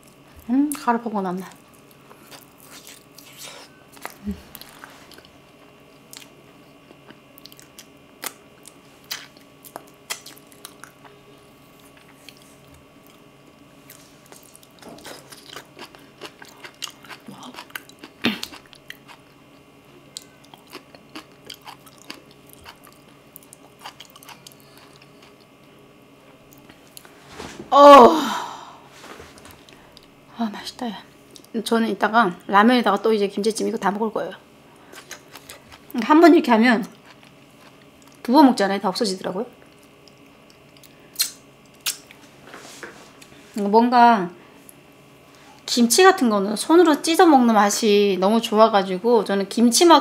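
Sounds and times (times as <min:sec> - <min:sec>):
wet chewing sounds: 0:01.6 - 0:05.4, 0:06.1 - 0:13.2, 0:13.8 - 0:25.7, 0:34.9 - 0:36.0, 0:39.6 - 0:42.2
person saying ah: 0:27.7 - 0:28.8
sharp mouth click: 0:41.2 - 0:42.1.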